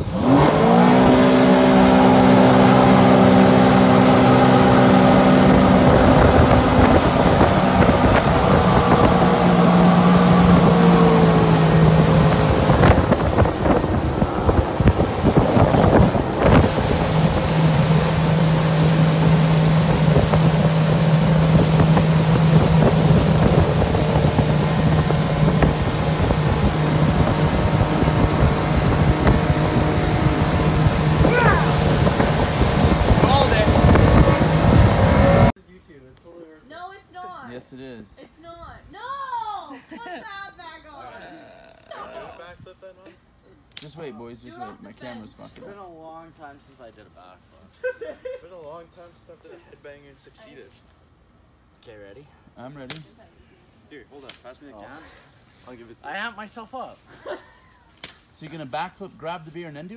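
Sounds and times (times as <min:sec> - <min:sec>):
boat engine running: 0:00.0 - 0:35.5
wind on microphone: 0:00.0 - 0:35.5
rushing wake water: 0:00.0 - 0:35.6.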